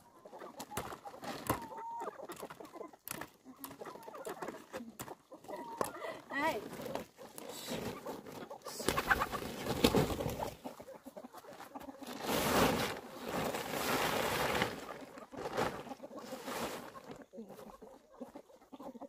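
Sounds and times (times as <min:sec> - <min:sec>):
chickens calling: 0:00.0 - 0:19.0
plastic tarpaulin rustling: 0:00.5 - 0:01.7, 0:06.3 - 0:10.7, 0:11.5 - 0:17.2.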